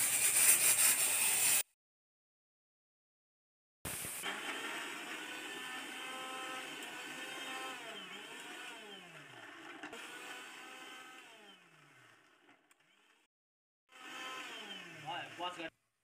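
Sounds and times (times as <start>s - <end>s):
mixer grinder motor whining: 4.2s - 13.3s, 13.9s - 15.7s.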